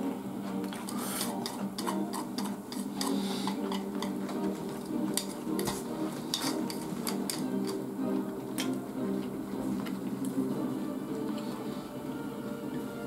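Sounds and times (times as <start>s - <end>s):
chopsticks clicking on a bowl: 0.7s - 7.8s, 8.6s - 8.8s.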